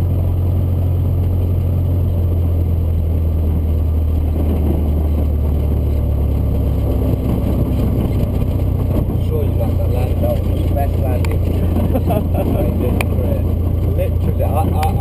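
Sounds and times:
propeller plane engine drone: 0.0s - 15.0s.

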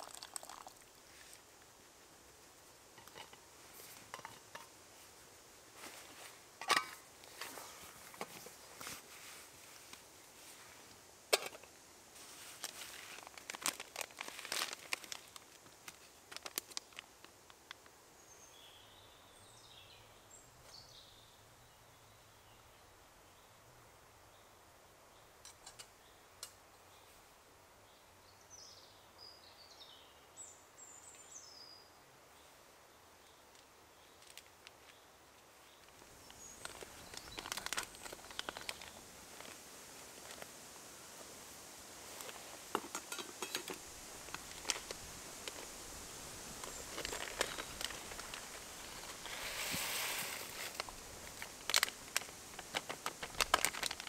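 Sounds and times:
songbird chirping faintly: 0.0s - 54.0s
hands handling cooking gear: 3.0s - 4.7s, 5.8s - 10.0s, 12.2s - 16.8s, 42.2s - 45.7s, 46.6s - 54.0s
food packet crinkling: 12.6s - 17.4s, 36.6s - 39.6s, 44.3s - 45.7s, 46.6s - 54.0s.

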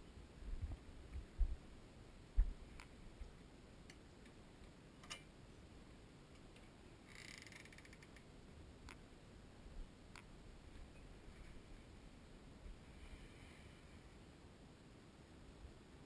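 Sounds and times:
door hinges creaking: 7.1s - 8.1s.

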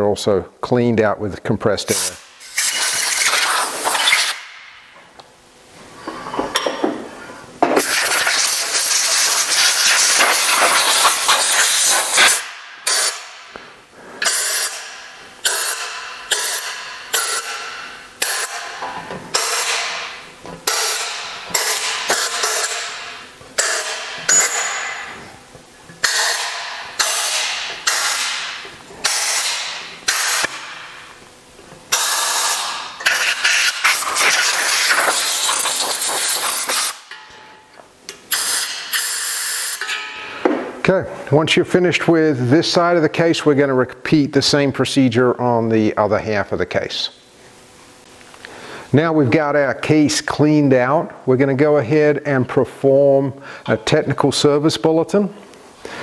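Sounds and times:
compressed air blow gun blasting: 1.9s - 4.7s, 7.7s - 25.1s, 26.0s - 31.0s, 31.9s - 37.2s, 38.3s - 39.9s.

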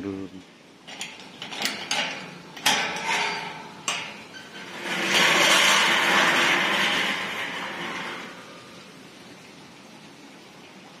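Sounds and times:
metal gate latch clanking: 0.9s - 8.5s.

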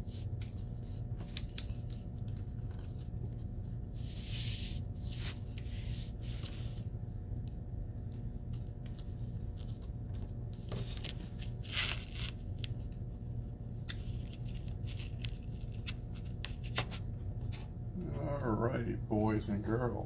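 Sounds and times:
steady low hum: 0.0s - 20.0s
duct tape crinkling and scraping: 0.4s - 3.5s, 8.6s - 13.0s, 13.8s - 17.6s.

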